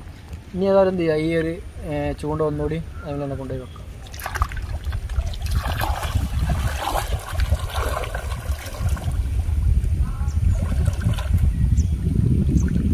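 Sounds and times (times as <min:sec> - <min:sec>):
steady low rumble: 0:00.0 - 0:12.9
water splashing and trickling: 0:00.0 - 0:12.9.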